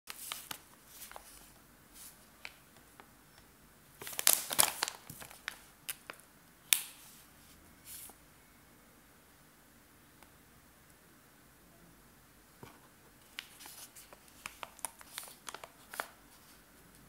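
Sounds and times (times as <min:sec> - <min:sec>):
plastic pouch crinkling: 0:00.1 - 0:02.6, 0:04.0 - 0:06.2, 0:13.3 - 0:16.6.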